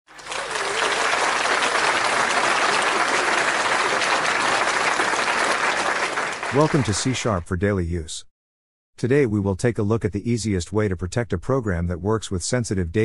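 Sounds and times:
crowd applause: 0:00.1 - 0:07.3.

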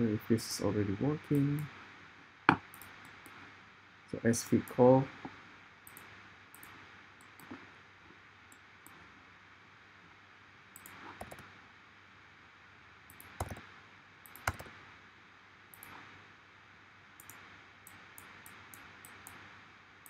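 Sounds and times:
faint steady hiss: 0:00.0 - 0:20.0
mouse and keyboard clicks: 0:10.8 - 0:11.5, 0:13.1 - 0:13.6, 0:14.3 - 0:14.7.

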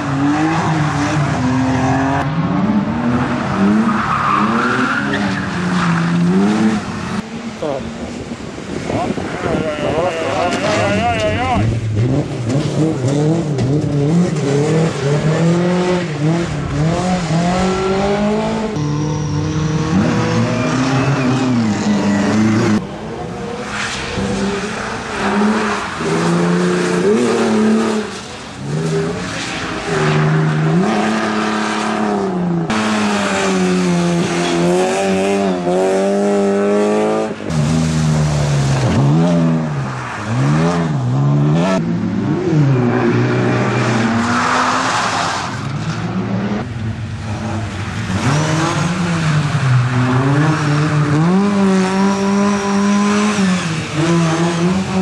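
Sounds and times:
car engine revving hard: 0:47.3 - 0:55.0.

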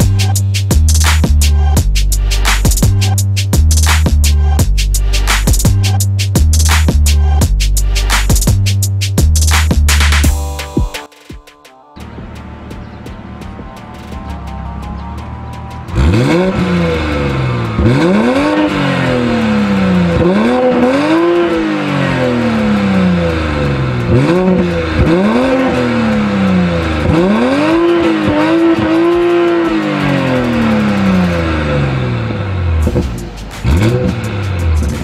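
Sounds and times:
music: 0:00.0 - 0:35.0
car engine revving: 0:12.0 - 0:35.0.

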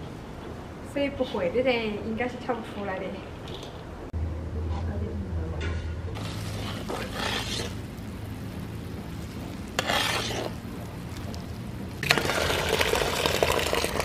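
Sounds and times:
crackling sizzle of poured caramel: 0:06.2 - 0:14.0
spatula scraping bubbling caramel: 0:06.2 - 0:14.0.

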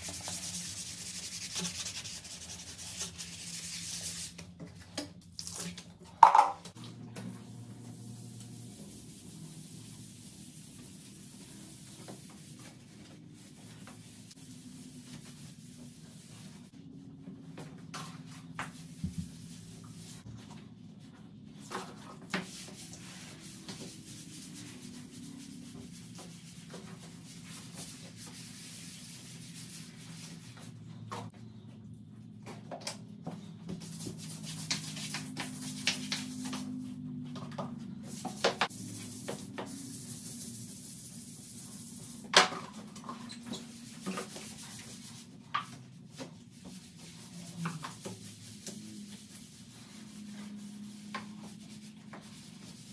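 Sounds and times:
gloved hand scrubbing shower wall: 0:00.0 - 0:04.5, 0:08.2 - 0:16.7, 0:21.6 - 0:30.8, 0:33.7 - 0:37.0, 0:38.1 - 0:52.9.

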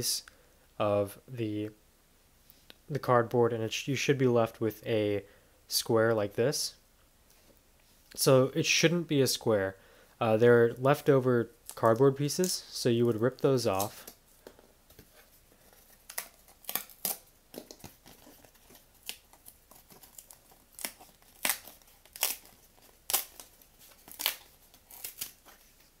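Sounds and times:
cardboard rustling: 0:13.7 - 0:26.0
cardboard tearing: 0:15.2 - 0:26.0.

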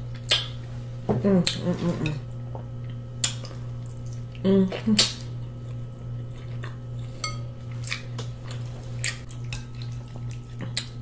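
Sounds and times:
low electrical hum: 0:00.0 - 0:11.0
wet eating clicks and smacks: 0:00.1 - 0:00.6, 0:02.8 - 0:06.8, 0:07.8 - 0:11.0.

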